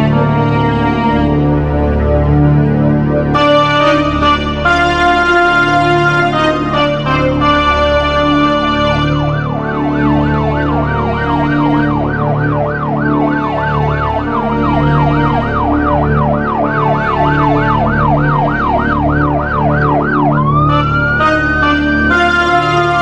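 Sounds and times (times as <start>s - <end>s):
low music drone: 0.0s - 23.0s
siren sweeping up and down: 0.0s - 23.0s
slow rising tone: 9.4s - 22.1s.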